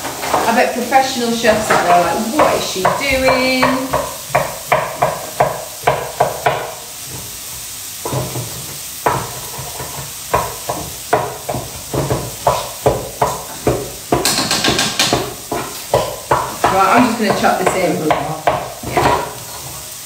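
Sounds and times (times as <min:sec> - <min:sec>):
knife chopping on chopping board: 0:01.5 - 0:06.8, 0:09.0 - 0:19.6.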